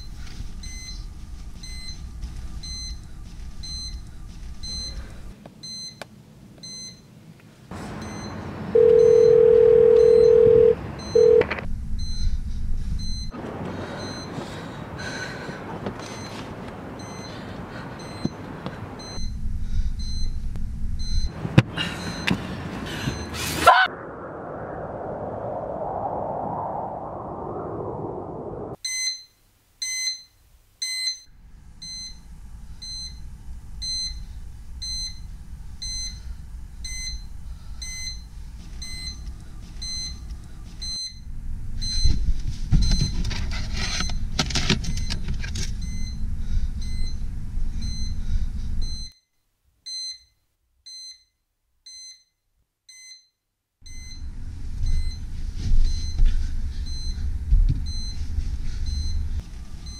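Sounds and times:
low rumbling drone: 7.7 - 14.0, 19.2 - 28.8, 39.3 - 49.1
electronic alarm beeping: 8.0 - 12.4, 48.8 - 49.2.

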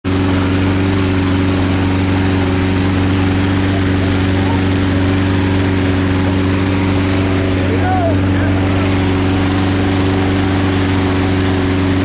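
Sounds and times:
inflator fan running: 0.0 - 12.0.

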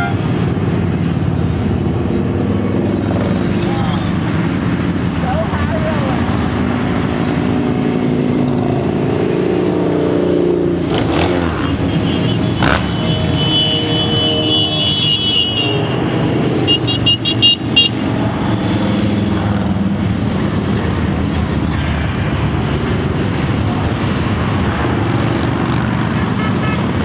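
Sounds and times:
motorcycles passing: 0.0 - 27.0
motorcycle horn: 11.7 - 16.0, 16.6 - 18.0, 26.4 - 26.9.

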